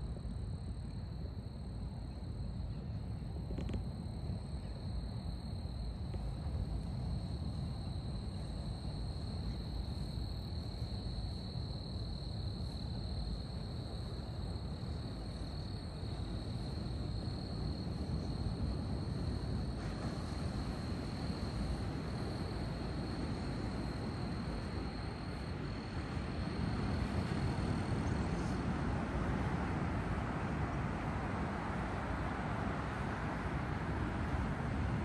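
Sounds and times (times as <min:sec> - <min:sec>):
ocean surf rumble: 0:16.1 - 0:35.0.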